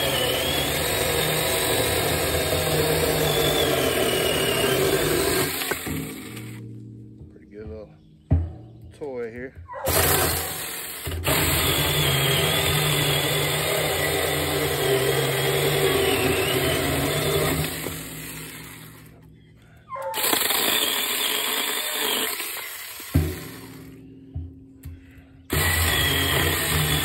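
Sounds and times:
electric chainsaw cutting log: 0.0 - 6.7, 9.9 - 19.2, 20.1 - 24.0, 25.5 - 27.0.

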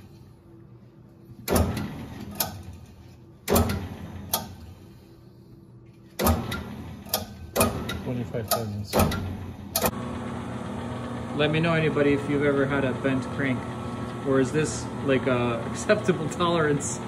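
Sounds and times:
sharp mechanical clunks: 1.4 - 4.7, 6.1 - 10.0.

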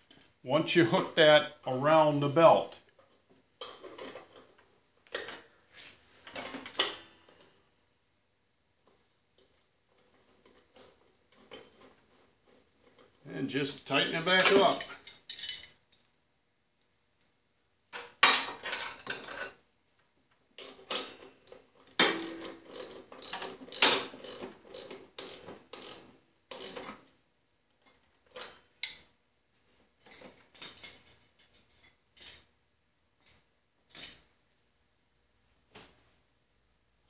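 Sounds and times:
ratchet wrench clicking: 22.2 - 26.8.

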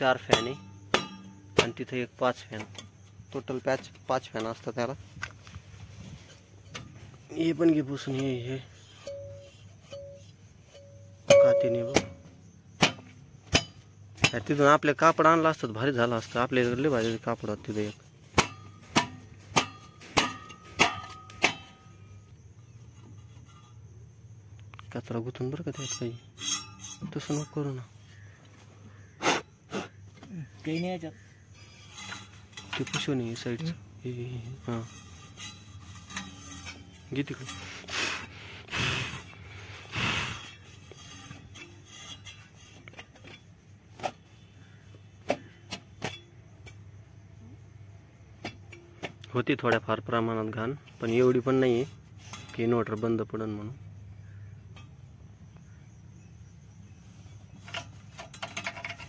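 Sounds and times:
sharp metallic knocks ringing: 0.0 - 4.6, 8.0 - 14.6, 18.3 - 22.2.

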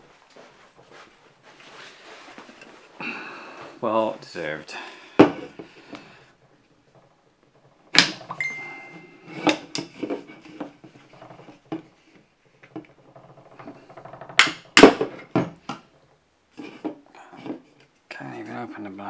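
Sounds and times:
objects knocking and clattering: 5.2 - 5.8, 6.4 - 18.0
steady high tone: 8.3 - 9.5.

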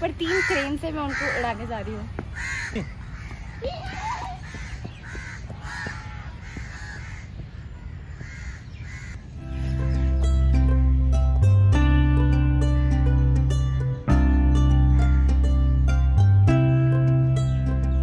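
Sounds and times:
crows cawing: 0.2 - 9.5
background music: 9.4 - 18.0.

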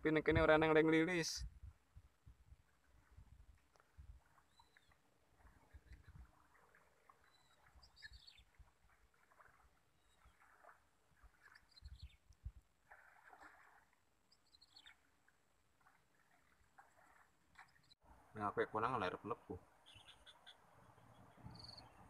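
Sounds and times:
faint bird calls: 4.4 - 8.6, 14.3 - 15.1, 19.8 - 22.0.

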